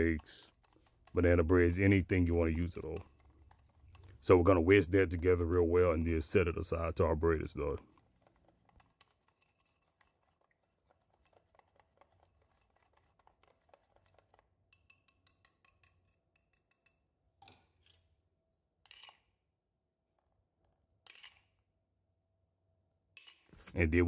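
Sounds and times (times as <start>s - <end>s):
whisk clicking against bowl: 0.0s - 17.0s.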